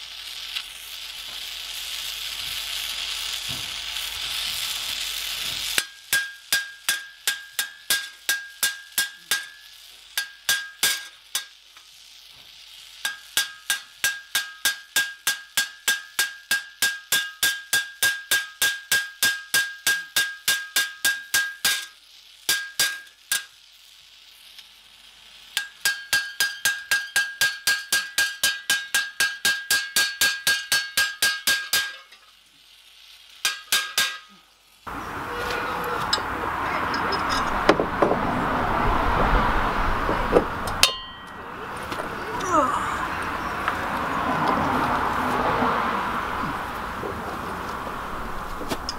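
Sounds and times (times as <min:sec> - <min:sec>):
hammer striking steel on anvil: 0:05.4 - 0:11.6, 0:13.0 - 0:23.6, 0:25.6 - 0:32.3, 0:33.4 - 0:34.4, 0:35.0 - 0:38.2, 0:40.3 - 0:42.1.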